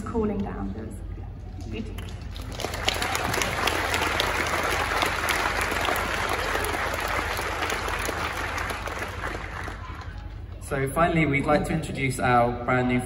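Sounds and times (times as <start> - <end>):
audience applauding: 2.0 - 10.6.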